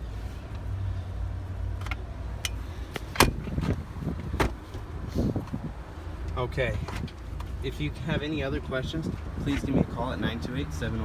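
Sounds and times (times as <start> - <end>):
car seats clicking and knocking: 2.9 - 4.9.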